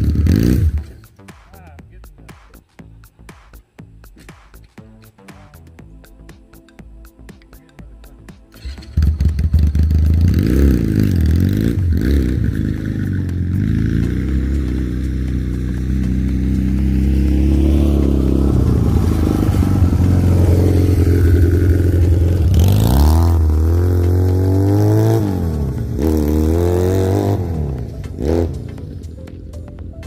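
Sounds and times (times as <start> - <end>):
atv engine accelerating: 0.0 - 1.1, 8.6 - 30.0.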